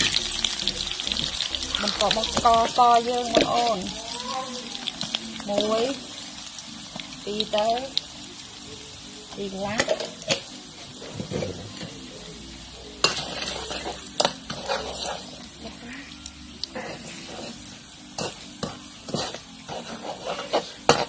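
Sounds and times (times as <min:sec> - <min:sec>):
aromatics sizzling in oil: 0:00.0 - 0:21.0
metal spatula scraping: 0:09.7 - 0:12.2, 0:12.8 - 0:15.9, 0:16.8 - 0:21.0.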